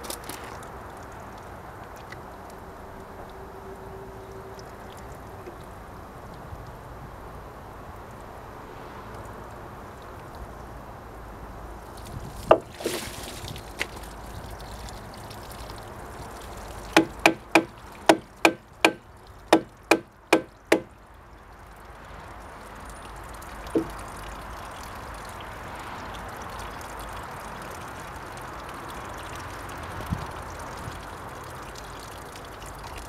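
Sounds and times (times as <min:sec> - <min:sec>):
water trickling: 0:00.0 - 0:33.0
hatchet knocking wooden plug: 0:17.0 - 0:20.9, 0:23.8 - 0:24.0.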